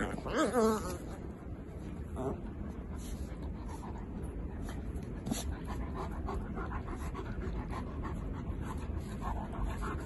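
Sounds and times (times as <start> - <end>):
steady low rumble: 0.0 - 10.0
dog panting: 2.7 - 10.0.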